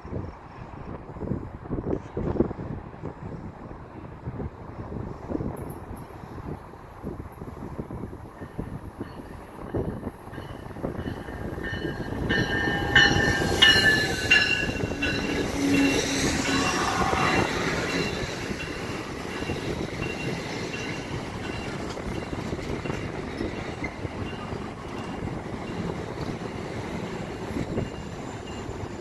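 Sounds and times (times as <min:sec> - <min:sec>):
rail rumble: 0:00.2 - 0:29.0
train wheels and brakes squealing: 0:08.3 - 0:29.0.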